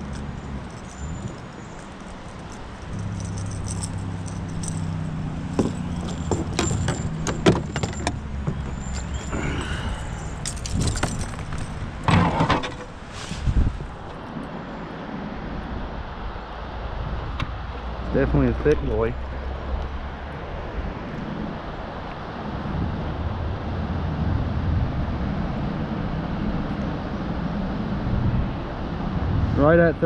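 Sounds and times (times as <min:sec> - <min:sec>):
low steady hum: 0:00.0 - 0:14.7
clicks and rattles in plastic kayak: 0:05.6 - 0:09.6, 0:10.5 - 0:12.9.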